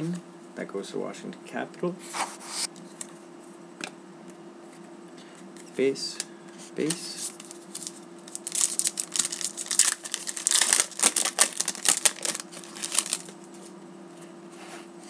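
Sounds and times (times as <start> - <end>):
shiny wrapper tearing and crinkling: 7.4 - 13.3.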